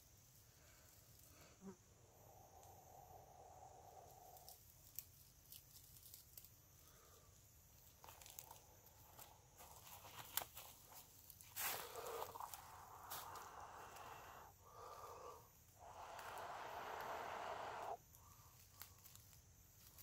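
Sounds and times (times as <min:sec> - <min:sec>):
dry tinder crackling: 0:07.7 - 0:20.0
blowing into tinder: 0:11.9 - 0:18.0.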